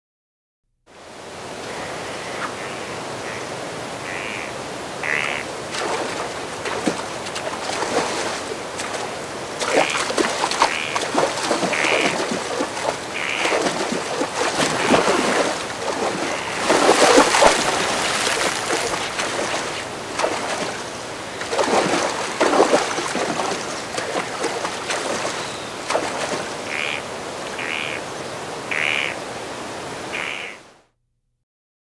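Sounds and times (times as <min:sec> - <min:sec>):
river water running: 0:00.9 - 0:30.8
bird calls: 0:01.6 - 0:05.4, 0:09.8 - 0:11.0, 0:13.1 - 0:13.8, 0:16.0 - 0:21.6, 0:25.0 - 0:29.2, 0:30.1 - 0:30.6
water splashing: 0:03.2 - 0:30.6.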